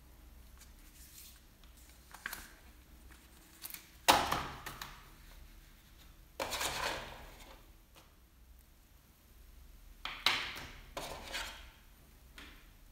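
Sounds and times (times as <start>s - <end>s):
paper rustling and scraping: 0.6s - 4.0s, 11.0s - 11.7s.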